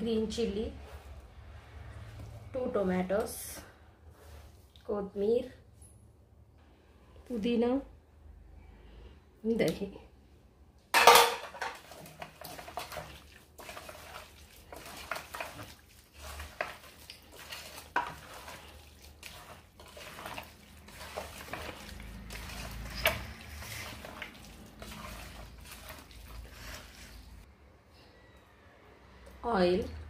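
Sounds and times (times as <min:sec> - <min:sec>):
wet stirring of meat: 0:00.8 - 0:05.2, 0:11.0 - 0:27.5
knocks and clinks against pot: 0:11.0 - 0:11.8.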